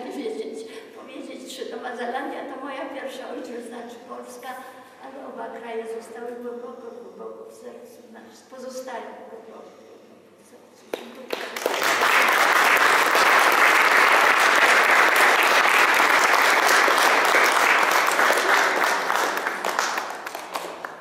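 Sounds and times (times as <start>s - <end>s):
audience applauding: 11.3s - 21.0s.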